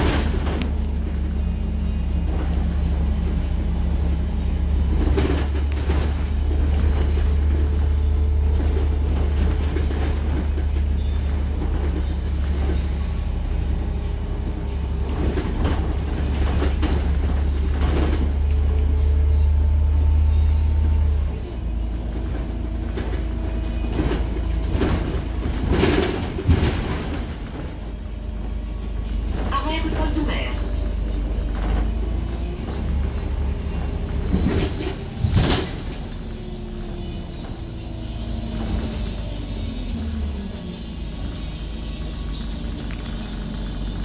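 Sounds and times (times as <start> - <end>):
body and fittings rattling: 0.0 - 41.7
bus engine drone: 0.0 - 44.0.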